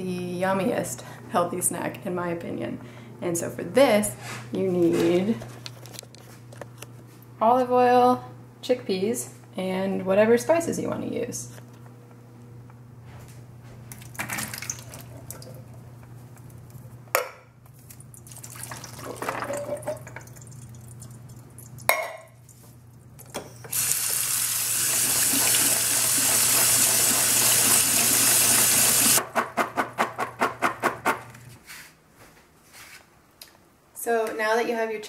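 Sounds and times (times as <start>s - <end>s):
kitchen tap running: 14.0s - 15.7s, 18.1s - 22.0s, 23.7s - 29.2s.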